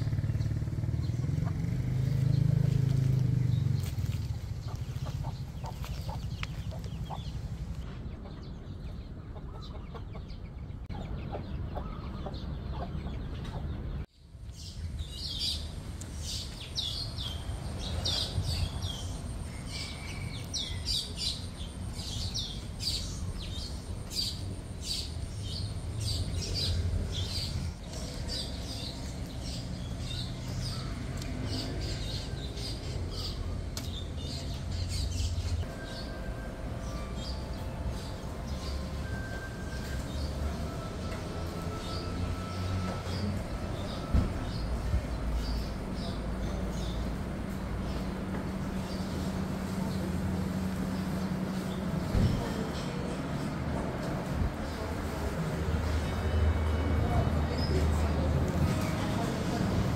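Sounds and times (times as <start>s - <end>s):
small birds chirping: 0.0s - 36.1s
chickens clucking: 1.1s - 2.0s, 3.8s - 14.0s.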